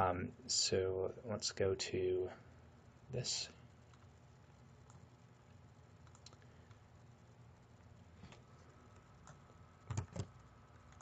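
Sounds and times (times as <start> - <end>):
computer mouse clicks: 6.0 - 6.8, 8.3 - 11.0.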